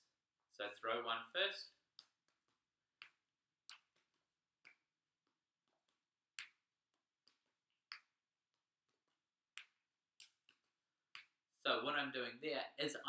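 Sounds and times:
juggling balls smacking into hands: 0:02.0 - 0:08.2, 0:08.8 - 0:11.4.

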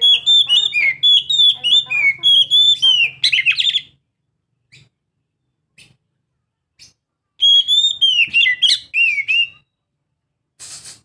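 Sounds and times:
bird singing whistles: 0:00.0 - 0:03.9, 0:07.4 - 0:09.8.

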